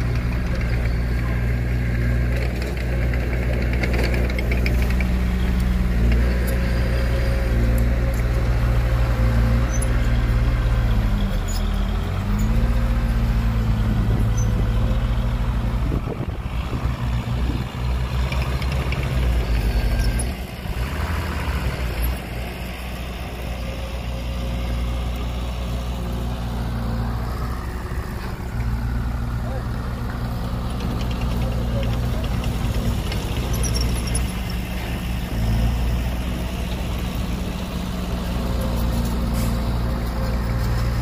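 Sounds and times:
heavy diesel engine running: 0.0 - 41.0.

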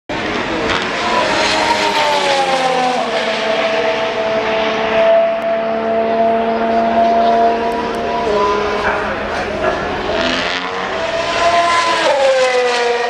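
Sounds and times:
racing car engines at speed: 0.1 - 13.0.

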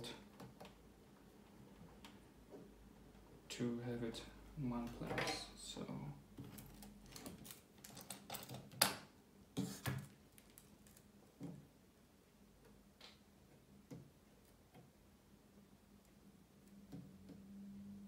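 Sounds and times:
faint steady hum: 0.0 - 18.0
tools and wires clicking: 6.4 - 9.0.

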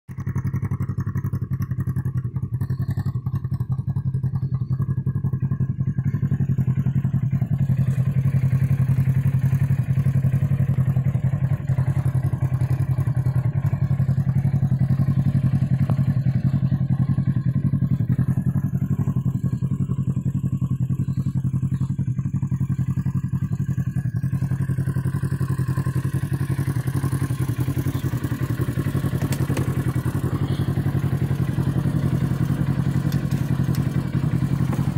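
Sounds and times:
engine idling: 0.1 - 34.9.

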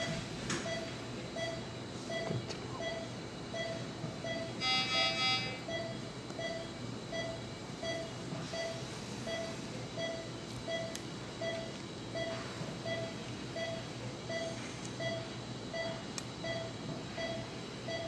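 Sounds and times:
patient monitor beeping: 0.0 - 18.0
steady low hum: 0.0 - 18.0.

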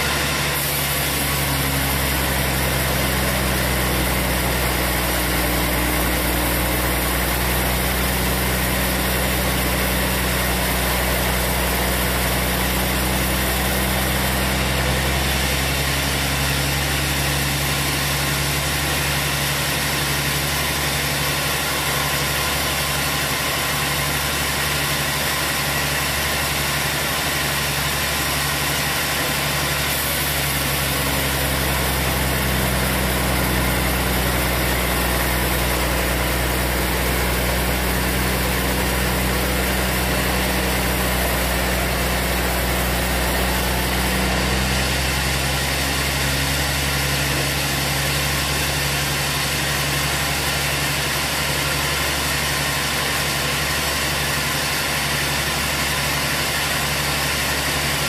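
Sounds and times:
band saw cutting log: 0.0 - 58.0.

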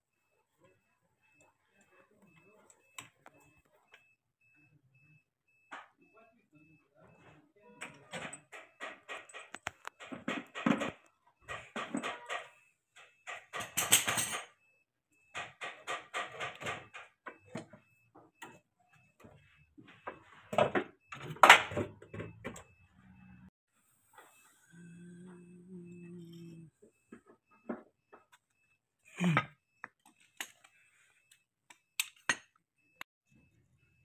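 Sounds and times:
metallic clicks and clanks of tools: 7.8 - 14.5, 29.9 - 32.6.

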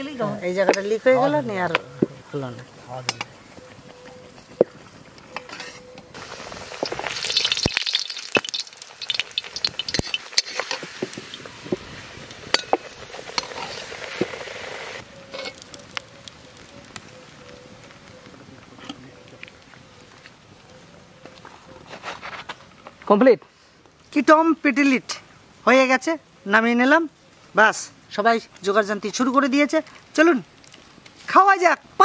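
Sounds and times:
metal spoon scraping a pan: 5.3 - 6.0, 8.5 - 11.4, 12.4 - 14.5
bread sizzling in hot oil: 6.1 - 18.2.

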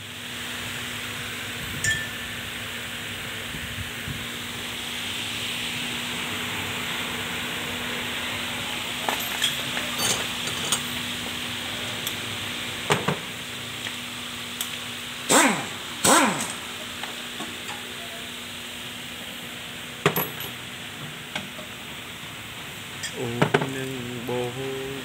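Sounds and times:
steady hiss: 0.0 - 25.0
metal parts clinking: 9.1 - 11.0.

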